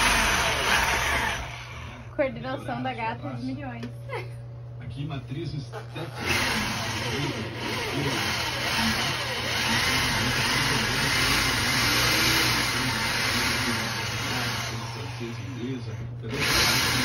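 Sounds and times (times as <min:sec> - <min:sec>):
electric drill boring into wall: 0:00.0 - 0:02.1, 0:06.1 - 0:17.0.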